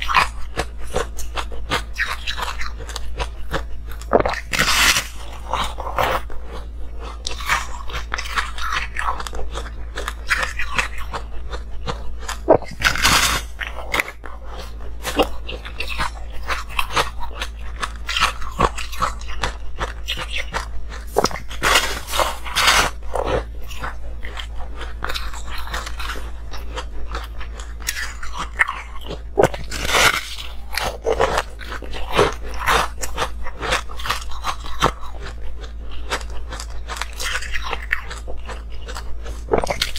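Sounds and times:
person crunching ice: 0.0s - 39.9s.

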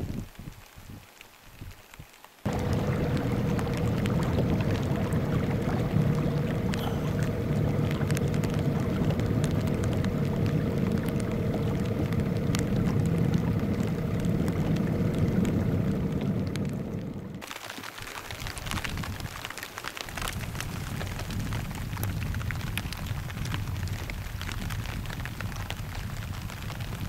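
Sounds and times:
water noise: 0.0s - 27.0s
wind: 0.0s - 27.0s
outboard motor running: 2.5s - 17.5s.

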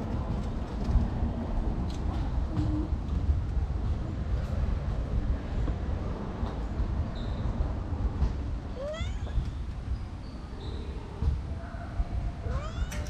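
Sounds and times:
cat meowing: 8.8s - 9.4s, 12.4s - 13.0s.

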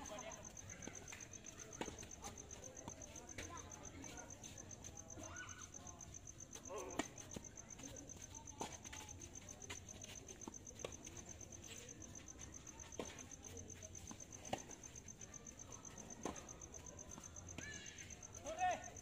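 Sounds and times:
tennis ball bouncing on court: 12.9s - 13.2s.

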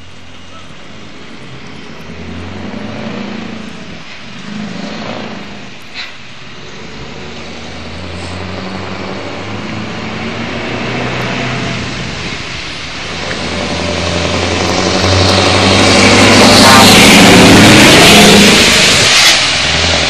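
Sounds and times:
diesel truck engine clattering: 0.0s - 20.0s.

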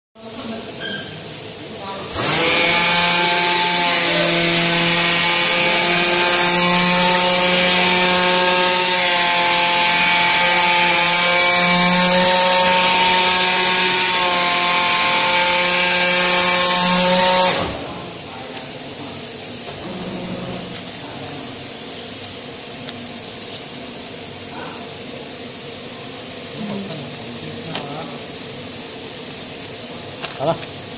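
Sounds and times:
cutting head buzzing: 2.1s - 18.4s.

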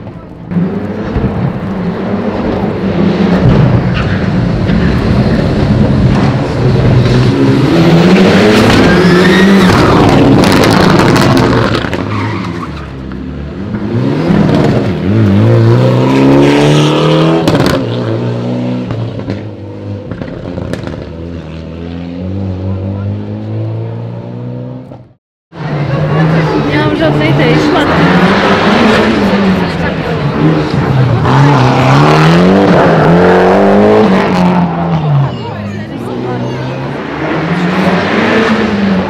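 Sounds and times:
rally car engine revving hard: 0.5s - 12.2s, 13.5s - 25.0s, 25.6s - 35.2s, 36.8s - 39.0s
tyres squealing: 8.6s - 10.0s.

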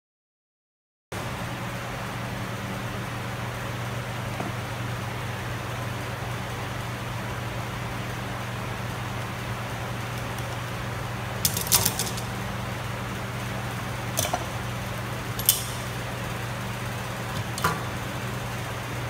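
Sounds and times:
steady low hum: 1.2s - 19.0s
steel clamps clinking: 15.4s - 15.9s.

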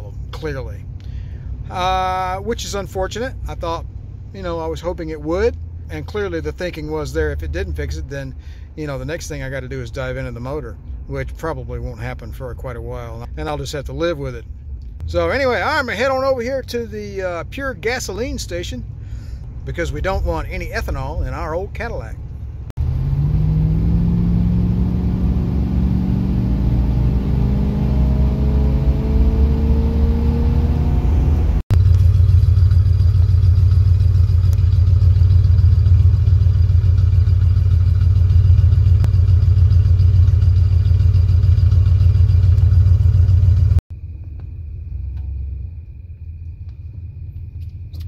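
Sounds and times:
loud steady exhaust note: 0.0s - 8.8s, 14.4s - 48.0s
quiet engine idle: 0.0s - 22.7s, 31.7s - 48.0s
car engine accelerating: 22.0s - 48.0s.

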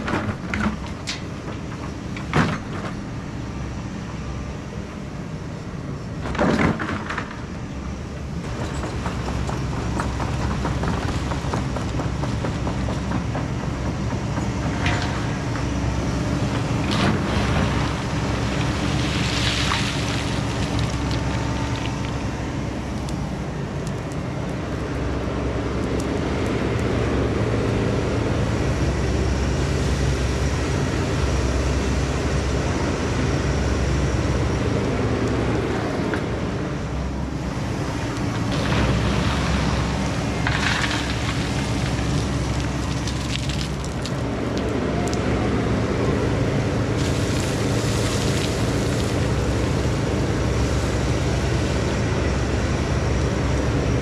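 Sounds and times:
excavator diesel engine running: 0.0s - 54.0s
excavator scraping: 38.4s - 43.8s.

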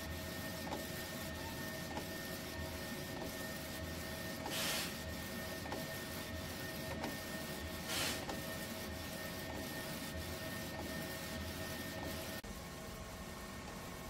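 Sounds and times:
printer mechanical hum: 0.0s - 14.0s
print carriage swish: 0.1s - 12.4s.

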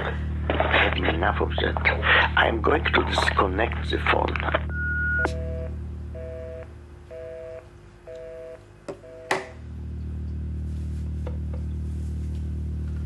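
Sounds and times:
low steady drone: 0.0s - 13.0s
telephone busy signal beeps: 4.7s - 9.3s.

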